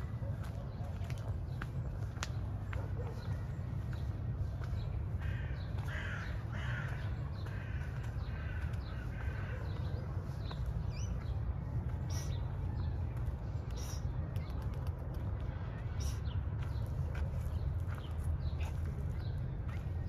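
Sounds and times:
steady low rumble: 0.0 - 20.0
bird harsh calls: 4.8 - 20.0.

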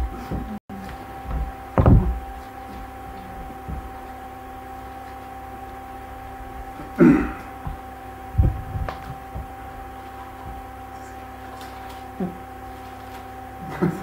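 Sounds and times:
dull knocks and thumps: 0.0 - 10.9
electrical hum: 0.0 - 14.0.

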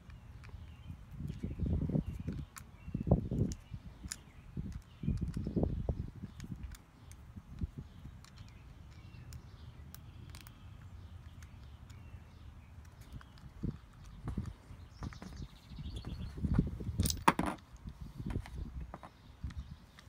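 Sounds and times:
small sharp clicks: 2.1 - 14.6
dull knocks and handling rumble: 12.8 - 20.0.

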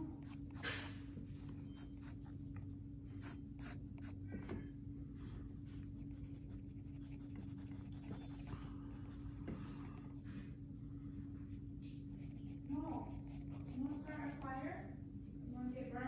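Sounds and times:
steady low hum: 0.0 - 16.0
pencil scratching on paper: 3.2 - 4.2, 6.0 - 9.5, 12.2 - 14.6.

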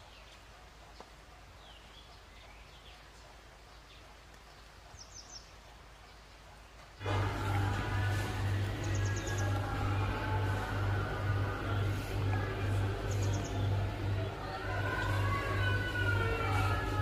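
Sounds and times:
intro music: 7.0 - 17.0.

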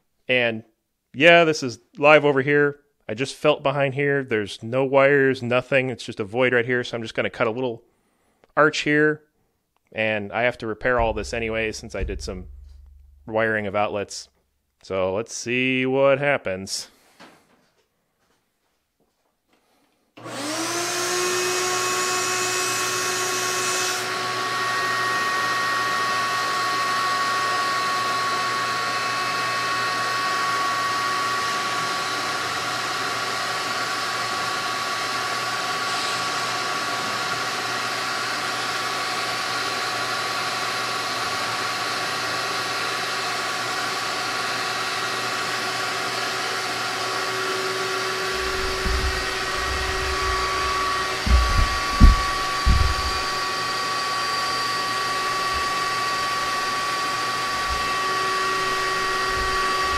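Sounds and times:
shop vac running: 10.8 - 13.5, 19.6 - 59.9
rotary tool whining: 20.2 - 24.5, 30.8 - 39.0, 44.5 - 59.9.

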